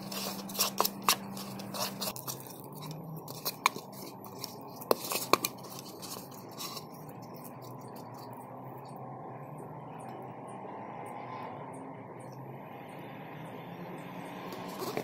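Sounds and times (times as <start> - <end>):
fork scraping mixing bowl: 0.0 - 8.3.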